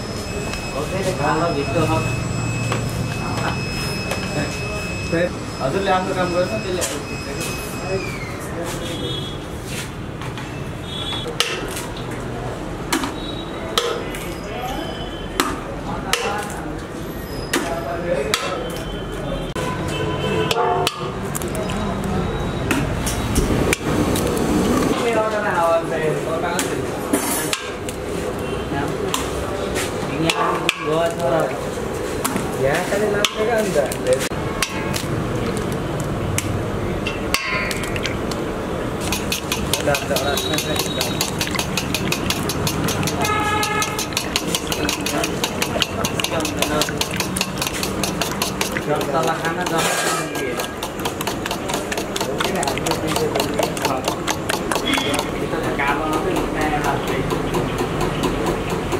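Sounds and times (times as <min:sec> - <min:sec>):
eggs cracking into metal bowl: 0:37.4 - 0:38.4, 0:39.0 - 0:55.4.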